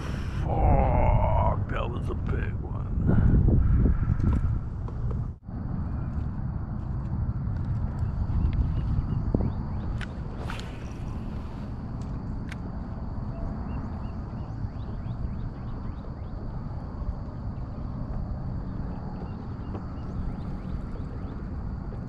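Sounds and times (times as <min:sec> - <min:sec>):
wind on microphone: 0:00.0 - 0:22.0
faint high whine: 0:05.5 - 0:22.0.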